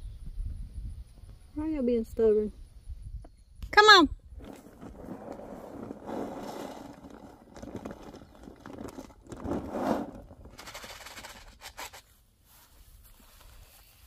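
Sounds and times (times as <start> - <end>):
plastic bag rustling: 4.4 - 11.8
kibble rattling into bowl: 6.7 - 12.0.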